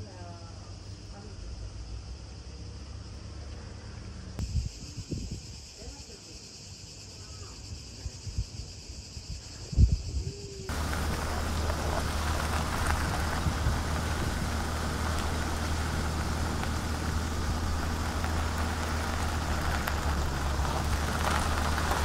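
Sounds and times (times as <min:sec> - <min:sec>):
road and wind noise: 0:00.6 - 0:06.1, 0:07.7 - 0:22.0
car engine hum: 0:10.7 - 0:22.0.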